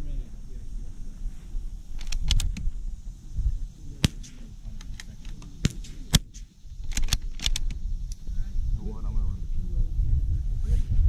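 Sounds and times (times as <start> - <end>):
rifle bolt clicking: 2.0 - 2.6, 4.0 - 7.8
rifle shots cracking: 4.0 - 7.7.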